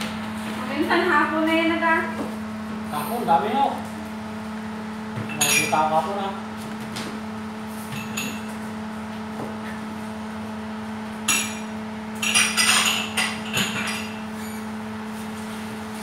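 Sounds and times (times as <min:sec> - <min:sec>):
steady low hum: 0:00.0 - 0:16.0
kitchen utensils knocking and clinking: 0:05.3 - 0:05.8, 0:12.2 - 0:14.2.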